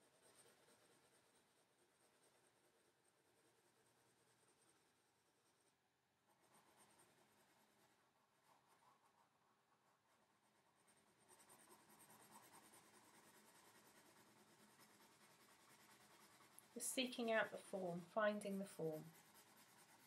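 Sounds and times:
pencil scratching on paper: 0.0 - 5.7, 6.3 - 20.0.

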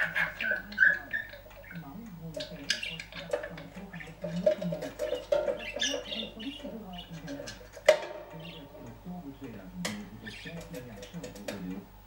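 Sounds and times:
budgerigar chattering and warbling: 0.0 - 7.8.

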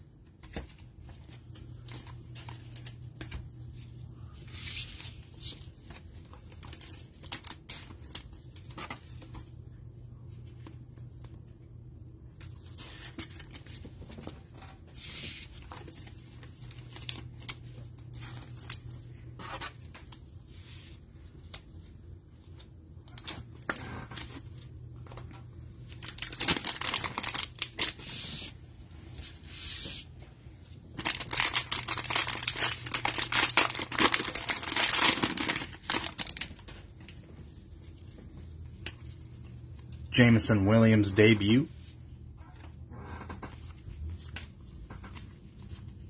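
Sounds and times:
plastic wrapper crinkling and tearing: 5.4 - 8.8, 25.9 - 28.5, 30.9 - 37.2
trading cards rustling: 26.0 - 28.6, 30.9 - 37.3.

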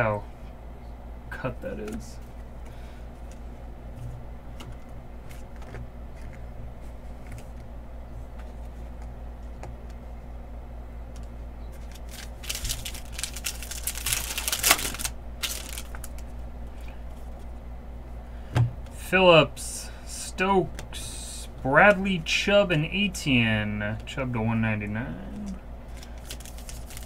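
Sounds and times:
low hum: 0.0 - 27.0
cards ticking: 11.1 - 16.3
foil wrapper crinkling and tearing: 11.8 - 16.3, 25.9 - 27.0.

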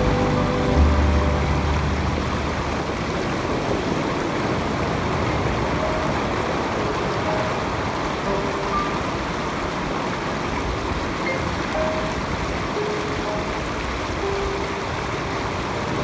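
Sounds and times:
low steady hum: 0.0 - 3.8.

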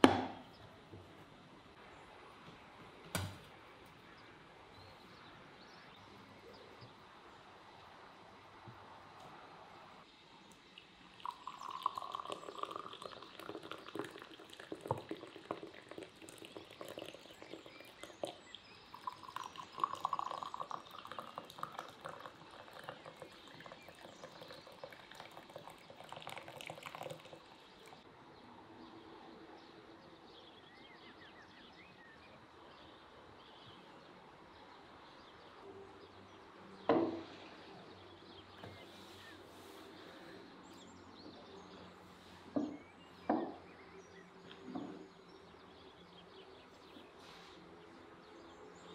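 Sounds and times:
sharp knock: 0.0 - 0.4
tea pouring into glass: 10.8 - 28.0.

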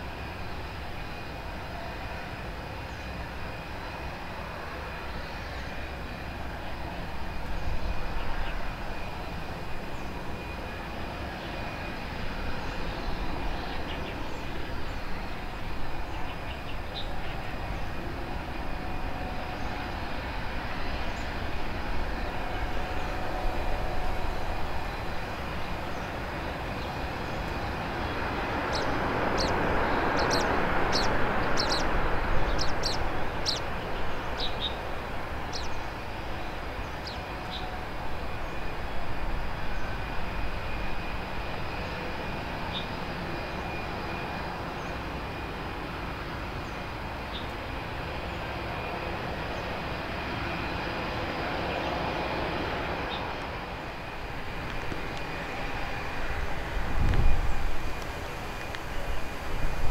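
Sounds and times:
jet engines running: 0.0 - 59.9.

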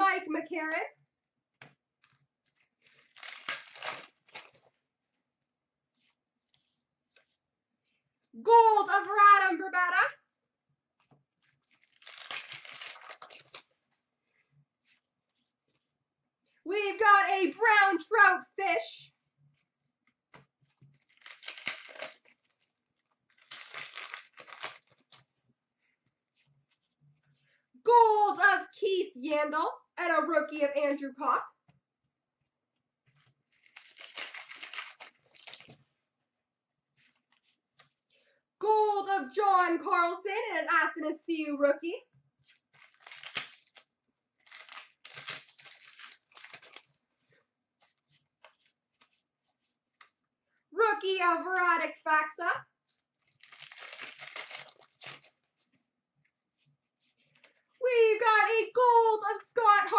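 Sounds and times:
card pack wrapper tearing: 2.8 - 4.6, 11.6 - 13.7, 20.9 - 22.7, 23.3 - 25.2, 33.4 - 35.8, 42.6 - 46.9, 53.2 - 55.4
cards ticking when handled: 52.9 - 55.5.

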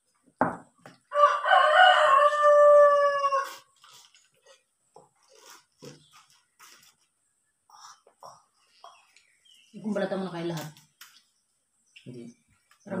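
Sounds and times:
rooster crowing: 1.1 - 3.7.

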